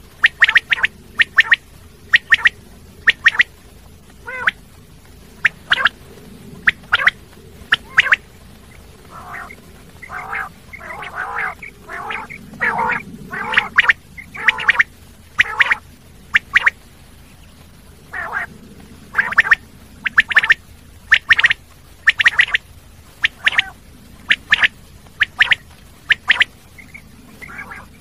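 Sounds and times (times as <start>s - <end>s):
quail calling: 0.1s - 4.6s, 5.4s - 16.8s, 18.1s - 18.5s, 19.1s - 28.0s.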